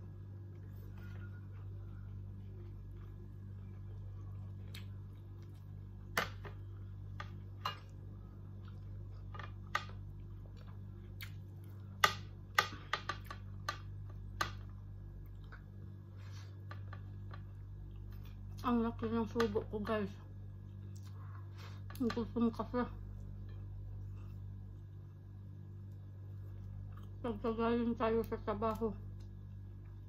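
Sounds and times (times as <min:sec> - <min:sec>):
steady low hum: 0:00.0 - 0:30.0
chewing: 0:00.5 - 0:05.8, 0:20.6 - 0:22.0.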